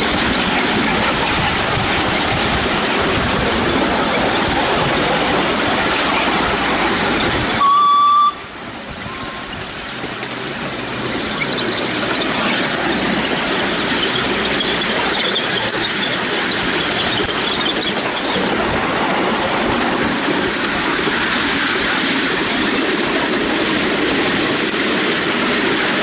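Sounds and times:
train running on track: 0.0s - 26.0s
steam locomotive whistle: 7.6s - 8.5s.

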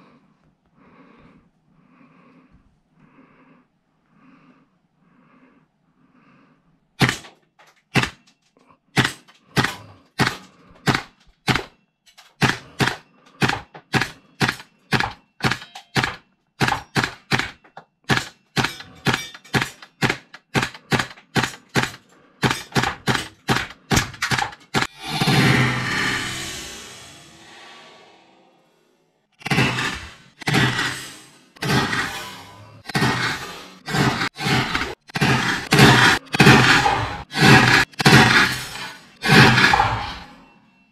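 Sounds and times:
rushing noise: 24.8s - 40.6s.

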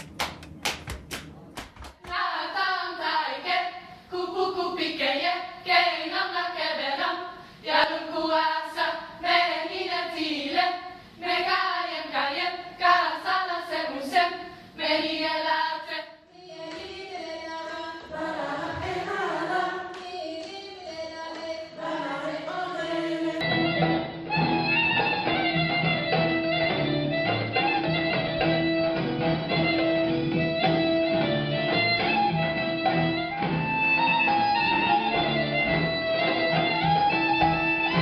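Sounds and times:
rhythmic claps and body slaps: 0.0s - 2.3s
group singing in unison: 2.0s - 23.5s.

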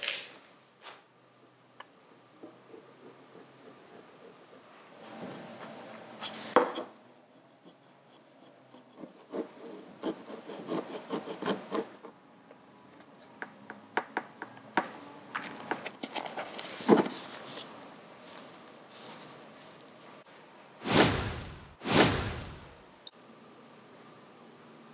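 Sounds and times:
hand tool scraping tape: 7.5s - 12.1s.

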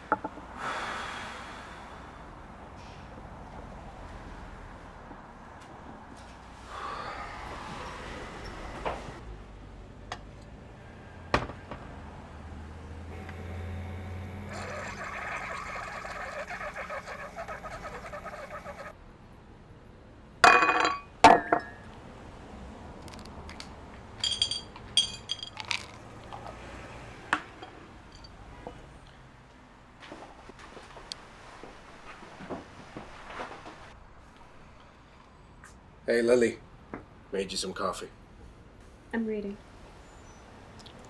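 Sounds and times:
coffee maker humming: 13.1s - 18.9s
sputtering trickle of coffee: 14.5s - 18.9s
ceramic mug clinking: 24.2s - 25.8s.

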